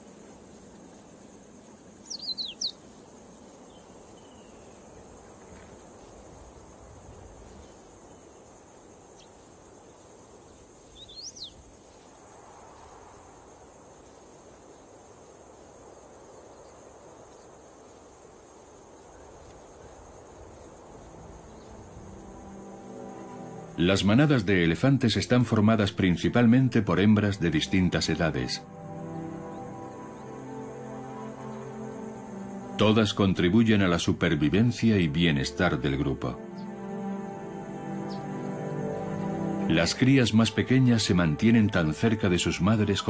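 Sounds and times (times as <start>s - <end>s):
high-pitched insect drone: 0.0s - 43.0s
bird chirps: 2.0s - 2.9s, 3.6s - 5.0s, 10.8s - 11.6s, 37.8s - 39.7s.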